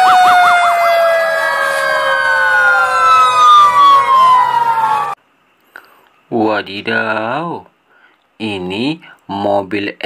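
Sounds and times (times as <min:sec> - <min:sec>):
fire engine sirens wailing: 0:00.0 - 0:05.2.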